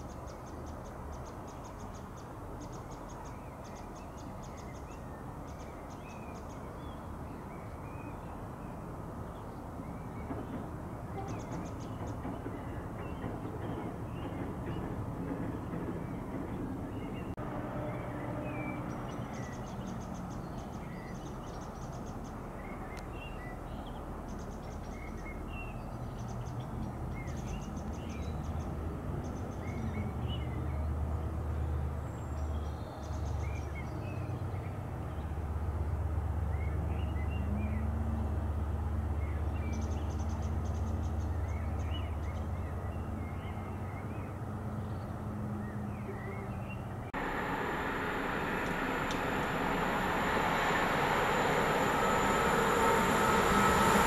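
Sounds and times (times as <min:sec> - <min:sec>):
distant freight train rumble: 0:09.7 - 0:25.6, 0:47.1 - 0:54.0.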